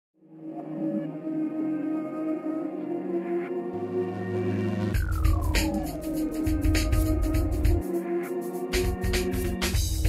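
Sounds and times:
ambient music of held tones: 0:00.3 - 0:10.0.

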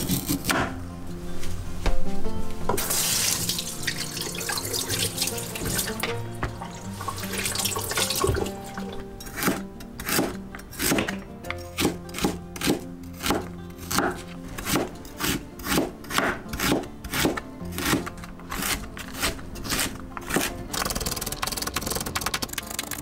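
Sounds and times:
knife chopping on cutting board: 0:00.0 - 0:00.8, 0:09.3 - 0:20.6
background music: 0:00.0 - 0:23.0.

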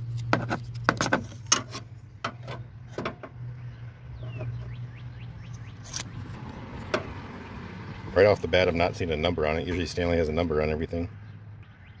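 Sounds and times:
bird chirping: 0:03.5 - 0:06.4, 0:11.2 - 0:12.0.

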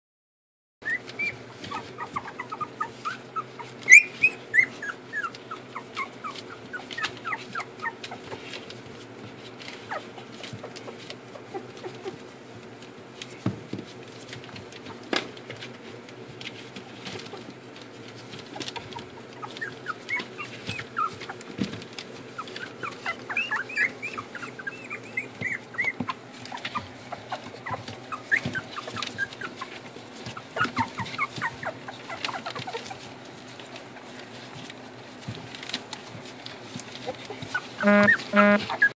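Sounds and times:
puppies squeaking and whimpering: 0:00.8 - 0:08.6, 0:09.5 - 0:12.3, 0:18.4 - 0:35.3, 0:36.9 - 0:38.9.

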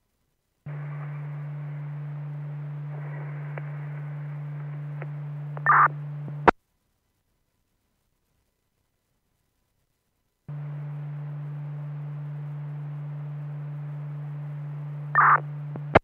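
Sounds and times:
radio crackle: 0:00.7 - 0:06.6, 0:10.5 - 0:16.0
radio hum over hiss: 0:00.7 - 0:06.6, 0:10.5 - 0:16.0
squelch click: 0:04.6 - 0:06.0.

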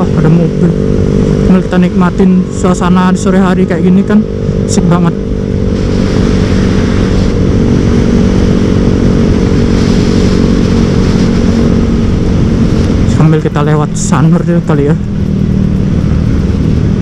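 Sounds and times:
motorcycle exhaust cruising: 0:00.0 - 0:17.0
wind and road noise: 0:00.0 - 0:17.0.

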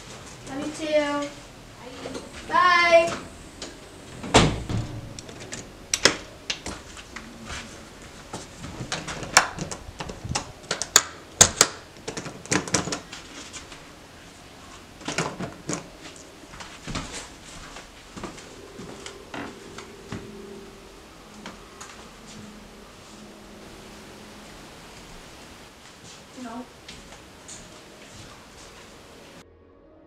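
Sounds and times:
front door thudding shut: 0:04.1 - 0:06.3.

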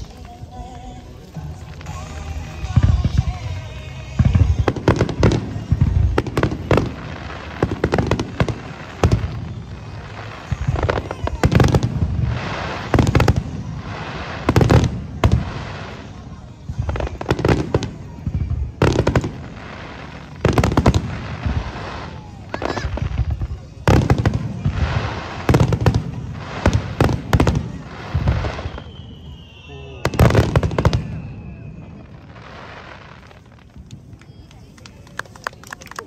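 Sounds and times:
music over loudspeakers: 0:00.0 - 0:08.2
fireworks booming and crackling: 0:00.0 - 0:36.0.

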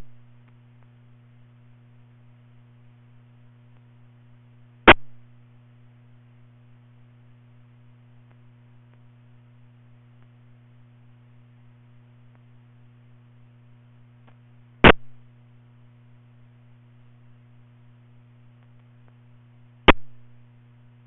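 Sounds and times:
low electrical hum: 0:00.0 - 0:21.0
loud pop: 0:04.9 - 0:05.2, 0:19.9 - 0:20.2.

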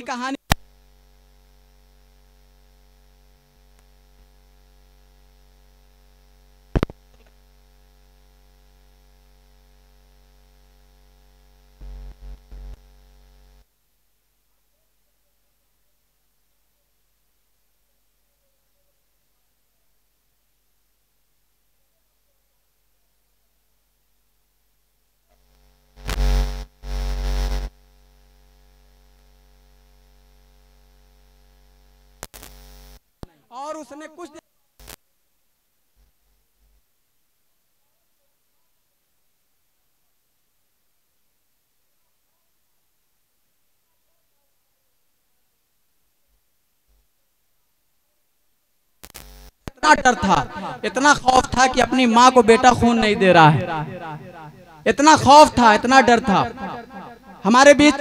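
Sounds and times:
buzzing static bursts: 0:00.0 - 0:07.8, 0:25.6 - 0:33.0, 0:49.0 - 0:58.0
mains hum: 0:00.0 - 0:58.0.

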